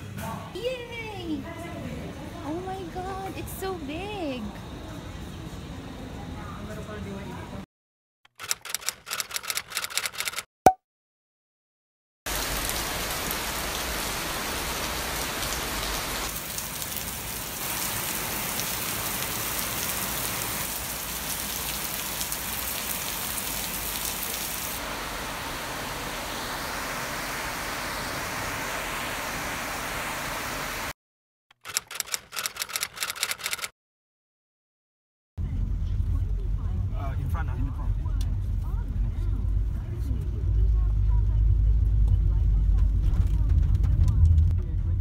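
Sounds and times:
typewriter key clicks: 8.3 - 10.4, 31.6 - 33.7
rain falling on paving: 12.3 - 27.0.

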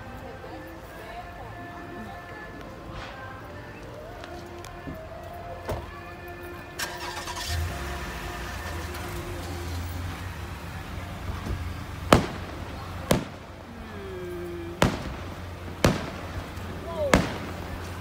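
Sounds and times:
fireworks bursting: 8.7 - 18.0.

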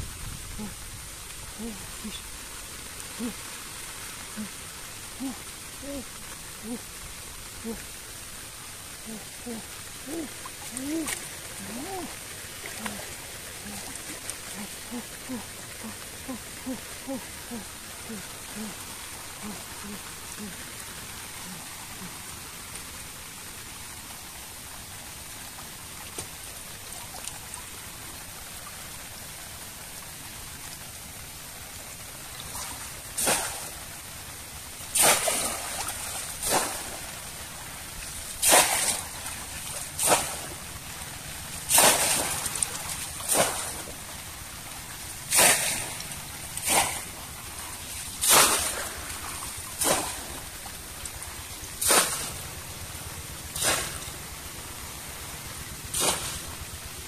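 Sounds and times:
steady hiss of water: 0.0 - 57.0
fish trap splashing into water: 34.9 - 37.1, 38.4 - 39.3, 40.0 - 40.6, 41.7 - 44.0, 45.3 - 46.0, 46.6 - 47.1, 48.1 - 50.4, 51.8 - 52.4, 53.5 - 54.1, 55.9 - 56.5.

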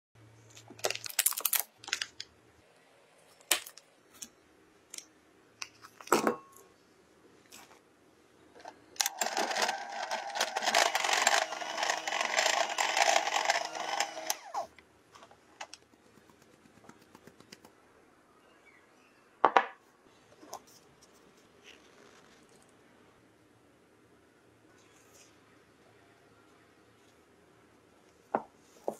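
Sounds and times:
foil packet crinkling: 0.5 - 2.3, 9.0 - 14.7
electric hand mixer running: 9.0 - 14.7.

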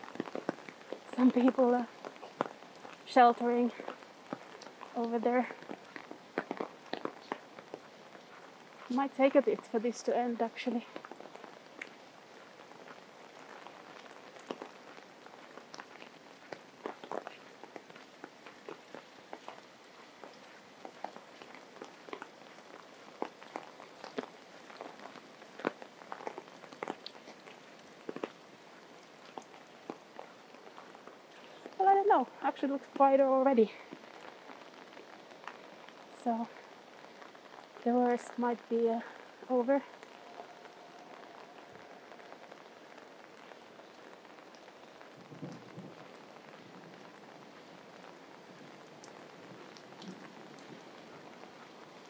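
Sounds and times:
heavy rain falling: 0.0 - 52.0
dripping water: 39.0 - 52.0.

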